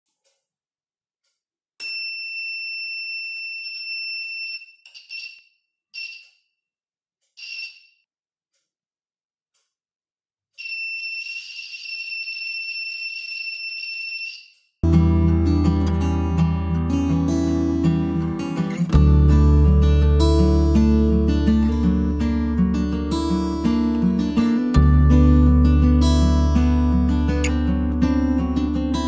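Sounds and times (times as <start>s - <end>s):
electronic buzzer tone: 7.4s - 8.0s.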